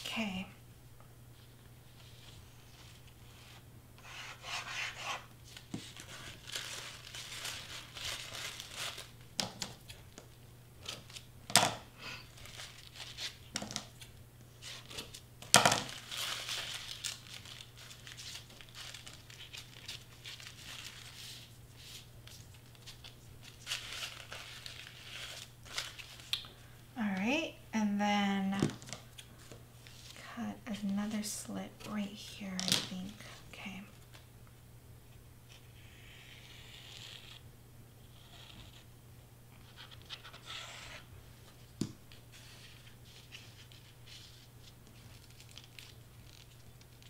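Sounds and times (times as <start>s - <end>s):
faint low hum: 0.0s - 47.0s
paper rustling and crinkling: 5.4s - 11.3s, 12.1s - 26.4s, 42.3s - 47.0s.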